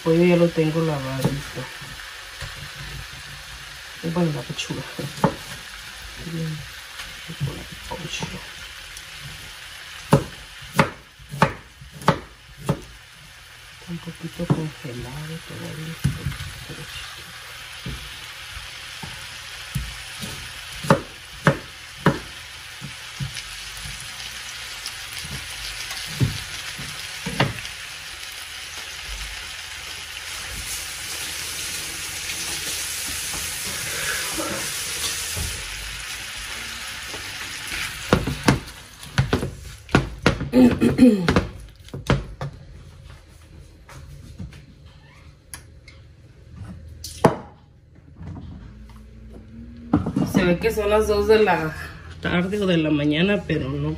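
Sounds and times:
chicken sizzling in oil: 0.0 - 39.9.

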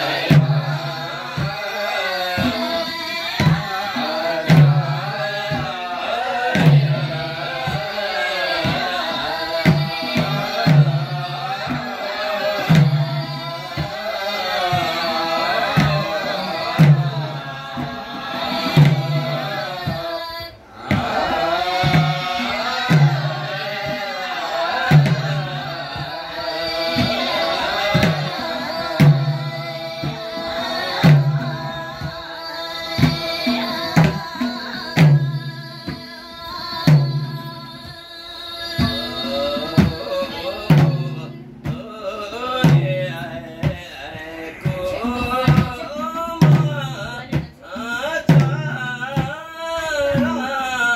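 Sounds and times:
women singing together: 0.0 - 50.9
hand drum beating: 24.9 - 50.8.

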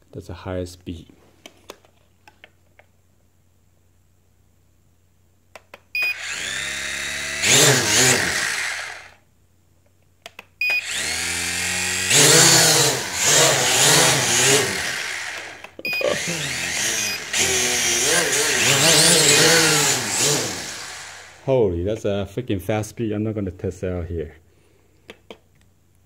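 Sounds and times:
toy drone propellers whining: 6.0 - 9.2, 10.8 - 21.4.

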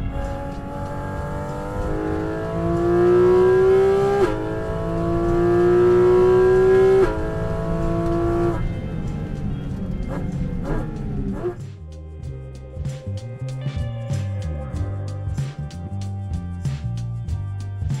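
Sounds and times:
sports car engine accelerating: 0.0 - 11.7.

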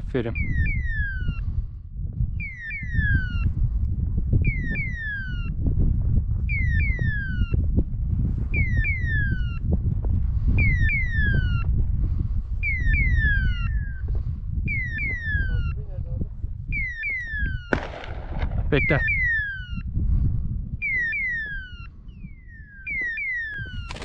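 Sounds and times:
falling electronic chirps: 0.3 - 1.4, 2.4 - 3.4, 4.4 - 5.5, 12.6 - 14.1, 20.8 - 24.0.

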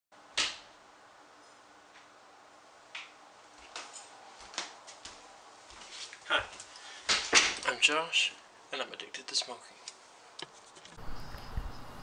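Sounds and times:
footsteps walking across a room: 2.8 - 7.7.

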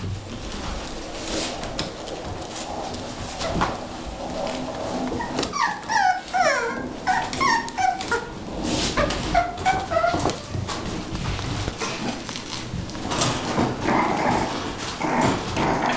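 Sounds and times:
puppies whimpering: 5.1 - 10.5.

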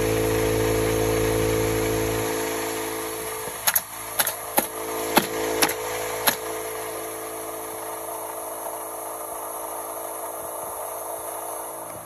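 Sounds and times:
steady hum with held tones: 0.0 - 12.0
hammer striking nails: 3.6 - 6.5.

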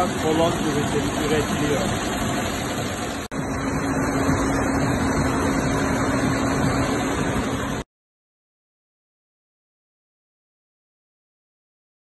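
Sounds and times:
steady hum: 0.0 - 7.9.

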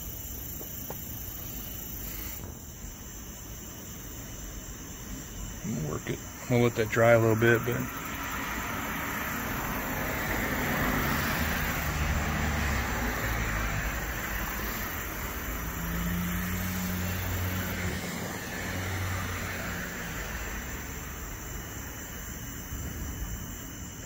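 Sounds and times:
cars passing: 5.6 - 24.0.

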